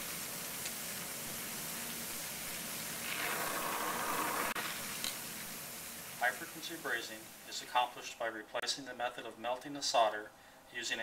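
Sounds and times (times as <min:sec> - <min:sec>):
torch flame hissing: 0:00.0 - 0:07.6.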